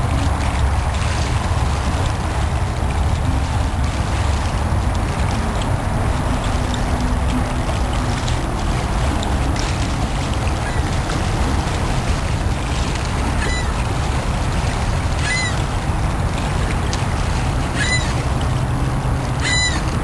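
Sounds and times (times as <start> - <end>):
lake water washing: 0.0 - 20.0
wind on microphone: 0.0 - 20.0
bird call: 13.4 - 13.8, 15.2 - 15.6, 17.8 - 18.2, 19.4 - 19.8.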